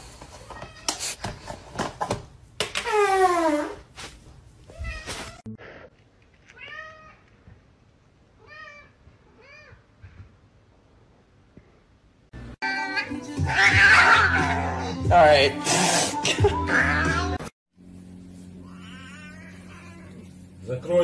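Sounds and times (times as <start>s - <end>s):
cat meowing: 18.6s - 20.3s.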